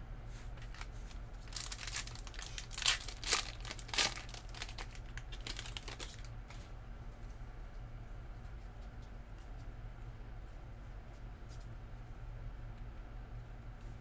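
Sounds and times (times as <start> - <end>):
wrapper crinkling and tearing: 0.6 - 6.4
cards rustling: 0.6 - 6.7.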